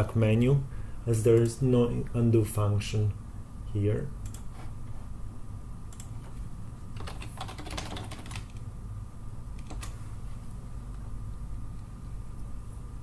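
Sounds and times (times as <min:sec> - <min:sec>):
steady low hum: 0:00.0 - 0:13.0
keyboard typing: 0:07.0 - 0:08.6, 0:09.6 - 0:10.0.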